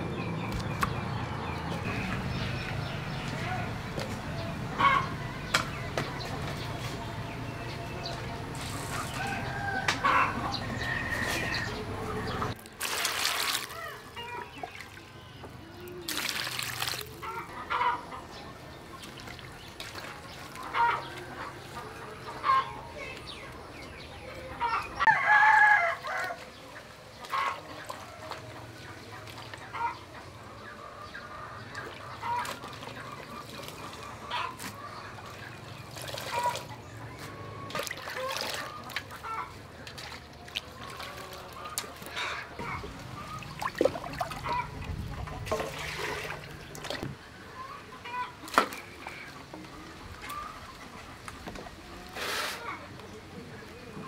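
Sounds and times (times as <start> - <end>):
chickens clucking: 0.4 - 7.1, 8.0 - 12.6, 17.1 - 25.2, 26.1 - 54.0
rooster crowing: 9.1 - 11.8, 25.1 - 26.4
water splashing in metal bowl: 12.7 - 14.9, 16.1 - 17.2, 43.2 - 47.0.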